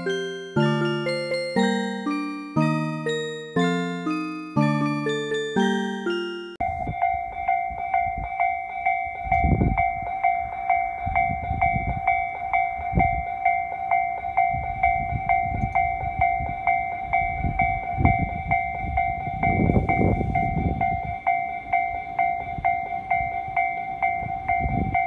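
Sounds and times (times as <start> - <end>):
level crossing warning bell ringing: 0.0 - 25.0.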